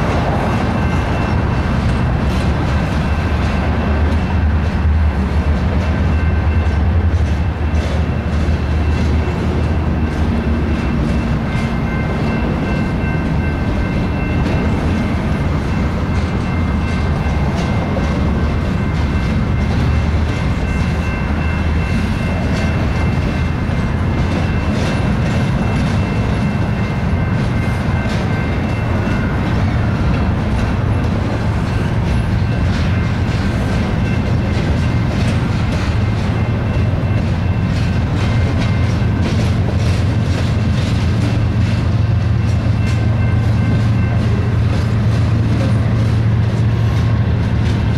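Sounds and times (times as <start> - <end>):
train wheels rumbling on rails: 0.0 - 47.9
clicking over rail joints: 14.4 - 47.9.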